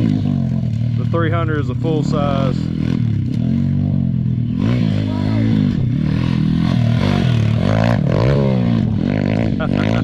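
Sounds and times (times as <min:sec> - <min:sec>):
motorbike engine revving: 0:00.0 - 0:10.0.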